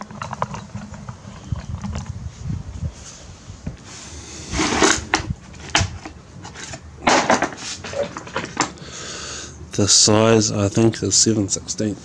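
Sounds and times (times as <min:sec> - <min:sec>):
metal tools clattering: 0:04.6 - 0:08.8.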